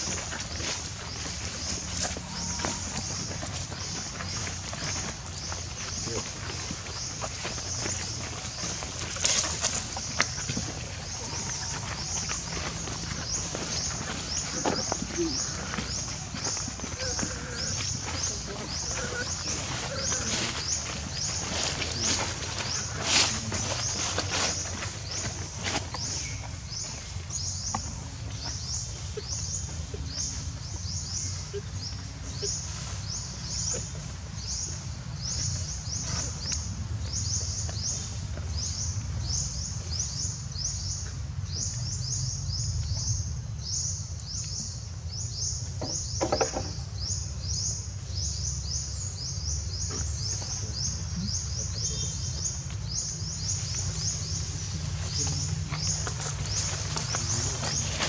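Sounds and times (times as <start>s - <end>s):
insect chorus rasping: 0.0s - 27.8s.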